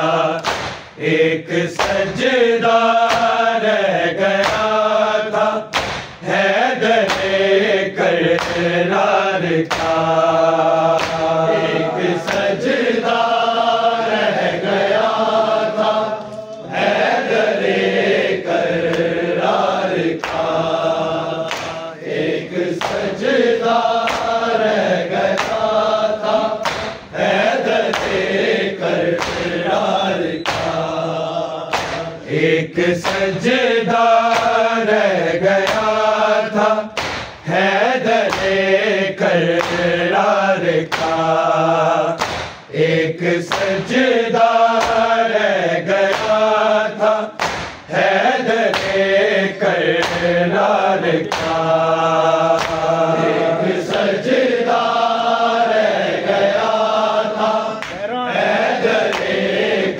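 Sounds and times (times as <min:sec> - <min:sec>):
men's voices chanting a lament: 0:00.0 - 0:59.9.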